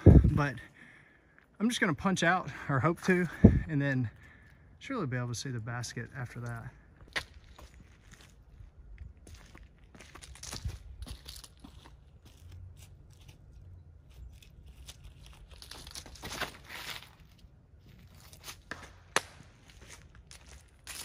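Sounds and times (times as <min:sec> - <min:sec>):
footsteps crunching through dry leaves: 0:07.0 - 0:21.0
sharp crack: 0:18.6 - 0:19.6.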